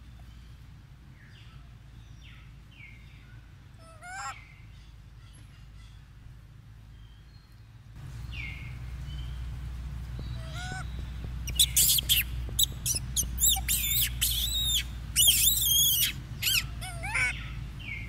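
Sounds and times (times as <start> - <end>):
low rumble: 7.9 - 18.0
high-pitched squealing animal calls: 10.4 - 10.9, 11.5 - 17.6.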